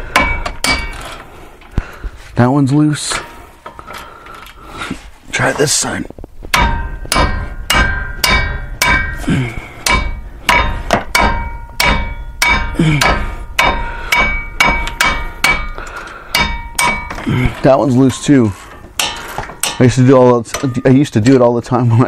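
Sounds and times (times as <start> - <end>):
hammer striking metal ratchet: 0.0 - 1.2, 6.5 - 21.5.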